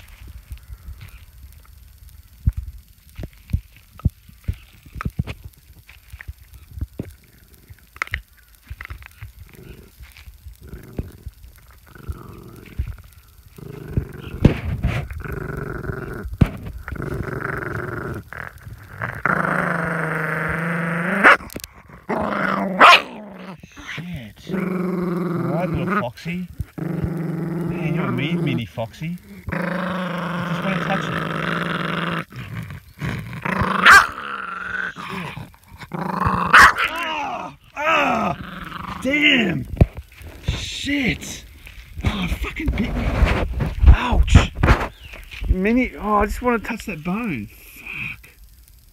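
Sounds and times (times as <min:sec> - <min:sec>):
dog growling: 0:09.4 - 0:45.2.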